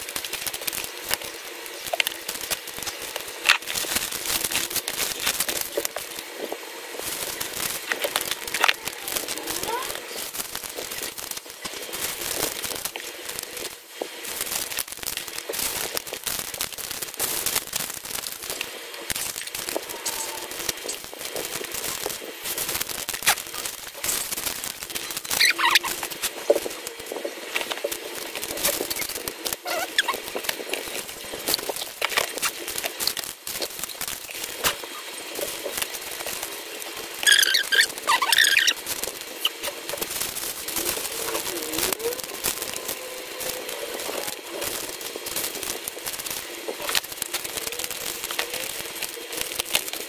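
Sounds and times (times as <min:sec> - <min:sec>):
plastic bags crinkling: 0:00.0 - 0:50.0
high squeak: 0:37.2 - 0:38.8.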